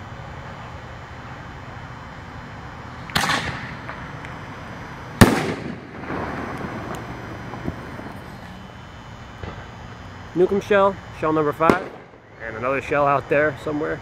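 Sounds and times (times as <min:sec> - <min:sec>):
firework lift charge report: 0:00.0 - 0:14.0
firework shell bursting bang: 0:03.1 - 0:04.0, 0:05.2 - 0:07.0, 0:11.6 - 0:12.3.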